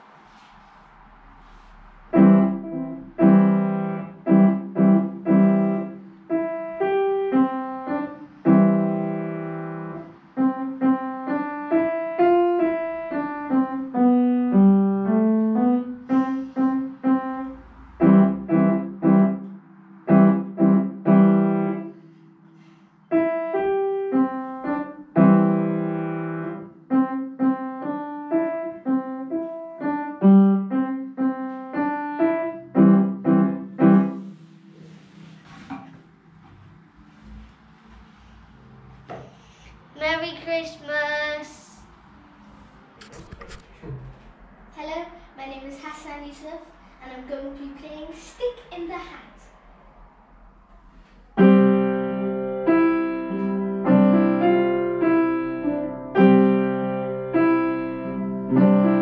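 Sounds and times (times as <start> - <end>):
upright piano solo: 2.1 - 22.0, 23.1 - 34.4, 51.4 - 59.0.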